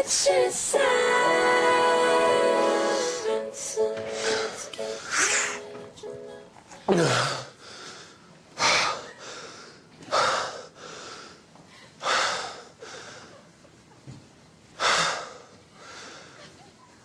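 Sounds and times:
person gasping: 4.0 - 5.7, 6.9 - 13.4.

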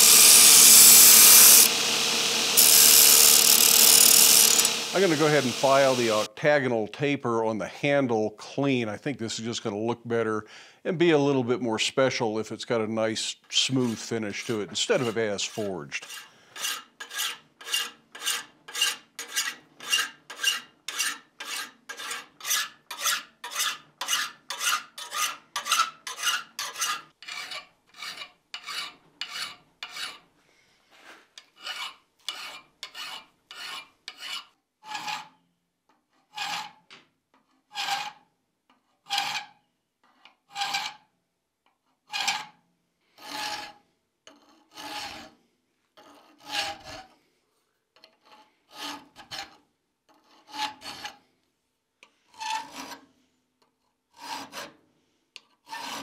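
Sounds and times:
hand file rasping on steel: 0.0 - 6.3, 13.8 - 30.3, 31.4 - 35.4, 43.2 - 45.4, 50.2 - 51.2, 54.1 - 54.8, 55.4 - 56.0.

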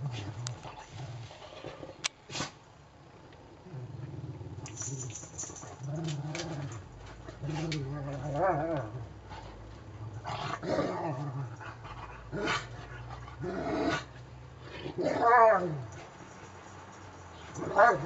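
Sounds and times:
dogs growling low: 3.6 - 15.9.

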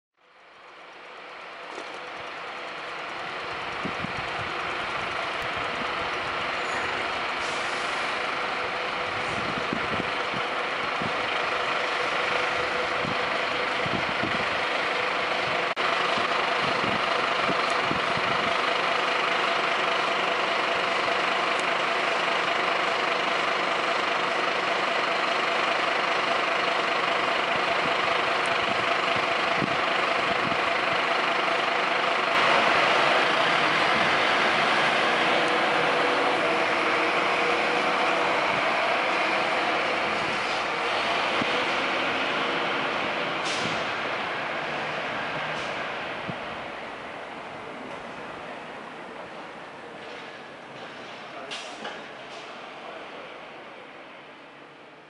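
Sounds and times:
diesel engines running: 0.2 - 55.0.

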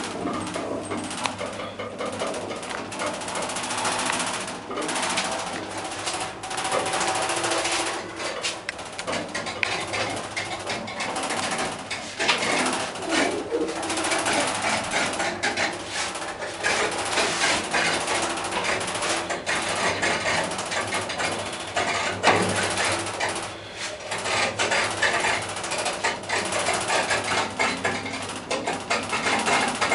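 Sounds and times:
elevator clattering rattle: 0.0 - 23.5.

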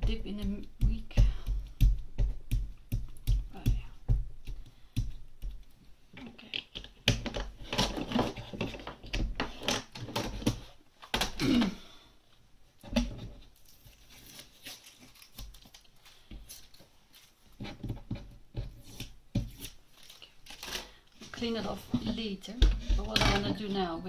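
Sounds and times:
masking tape peeling: 13.6 - 17.4.

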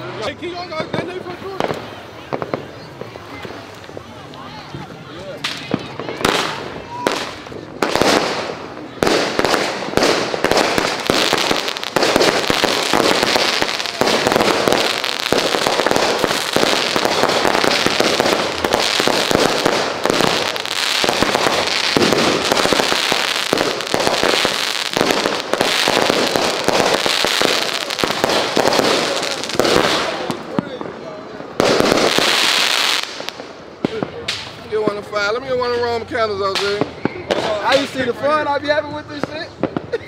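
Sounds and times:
firework cake launches and bursts: 5.4 - 34.7.

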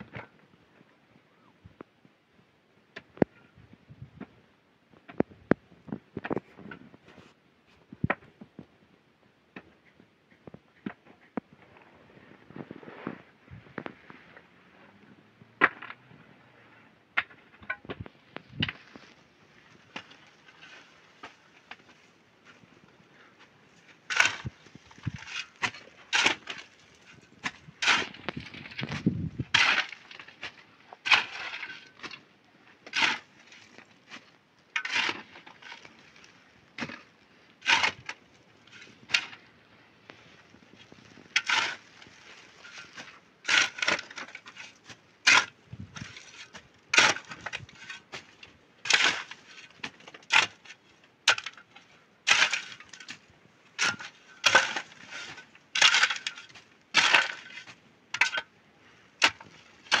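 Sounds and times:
shovel scraping stony earth: 11.6 - 15.0, 15.6 - 60.0.

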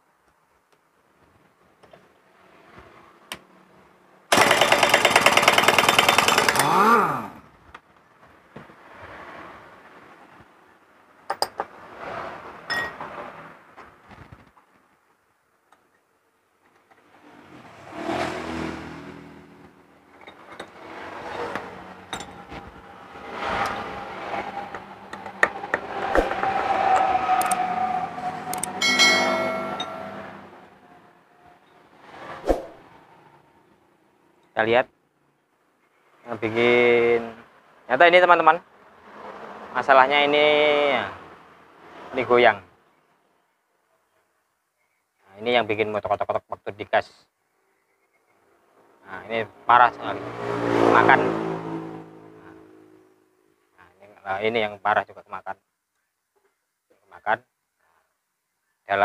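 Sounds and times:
impact wrench hammering: 4.3 - 6.8
metal clinks and knocks: 22.1 - 22.6, 28.6 - 30.4.

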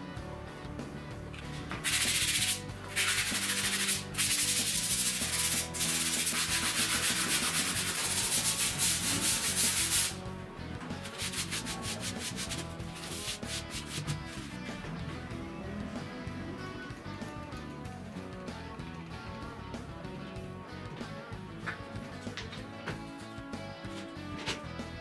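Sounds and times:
sanding sponge rasping: 1.8 - 10.2, 11.0 - 14.5.

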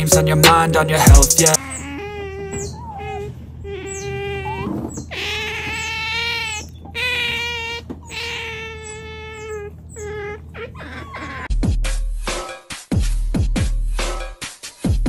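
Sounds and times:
otters whining: 0.0 - 11.5.

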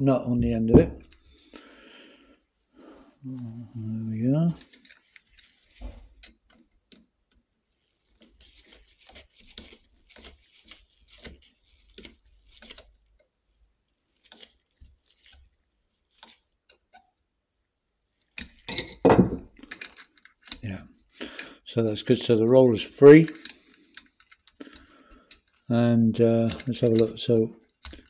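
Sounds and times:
gloved hands rustling: 2.7 - 6.5, 7.6 - 13.2
small metal clicks and scrapes: 4.6 - 7.1, 8.0 - 13.0, 14.1 - 17.0, 18.2 - 19.0, 19.6 - 22.3, 23.0 - 28.0.

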